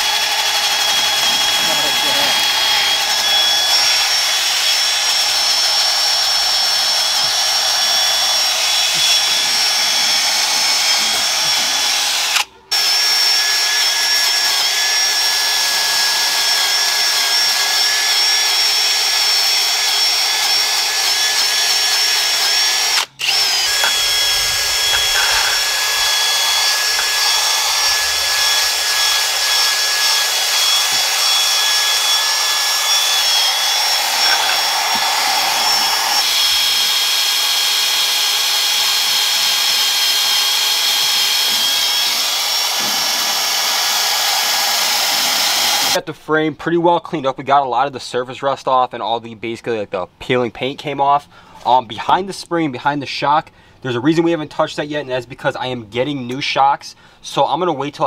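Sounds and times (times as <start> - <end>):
wire wheel scrubbing metal: 0.0 - 6.0, 23.2 - 45.9
drill motor whine: 0.0 - 46.0.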